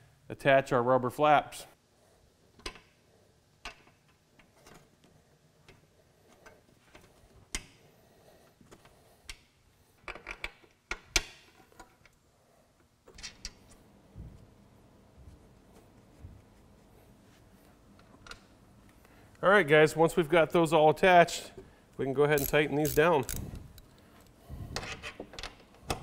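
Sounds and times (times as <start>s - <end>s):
metal bolts clicking and knocking: 22.3s - 24.0s.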